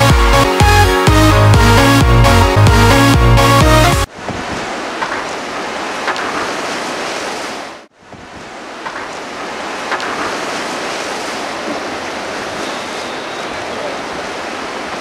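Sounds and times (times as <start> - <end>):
river rushing in flood: 4.1 - 15.0.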